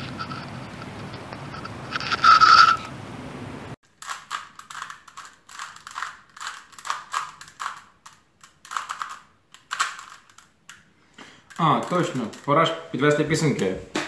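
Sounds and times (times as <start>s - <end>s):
outdoor noise: 0.0s - 6.3s
puzzle cube clicking: 4.0s - 10.9s, 11.5s - 12.5s.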